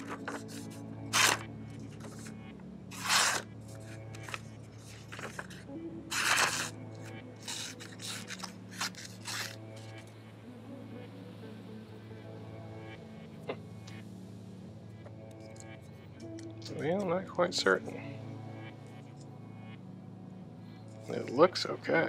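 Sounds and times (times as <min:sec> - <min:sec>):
paper rustling: 0:00.0 - 0:02.3, 0:02.9 - 0:06.7, 0:07.4 - 0:09.9
knife slicing paper: 0:01.1 - 0:01.4, 0:02.9 - 0:03.4, 0:06.1 - 0:06.7, 0:07.4 - 0:09.6.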